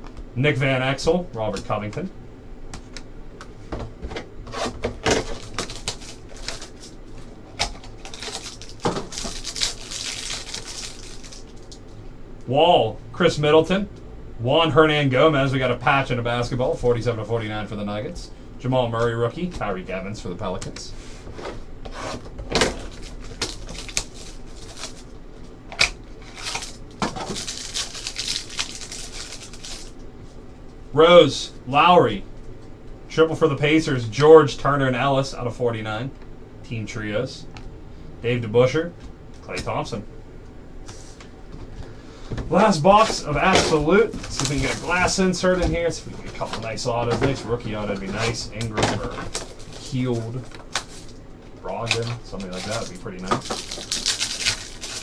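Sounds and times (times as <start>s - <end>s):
plastic wrapper crinkling and tearing: 5.2s - 7.0s, 7.6s - 11.8s, 22.8s - 25.1s, 25.8s - 30.0s, 42.9s - 45.3s, 48.0s - 55.0s
cardboard tearing: 51.8s - 55.0s.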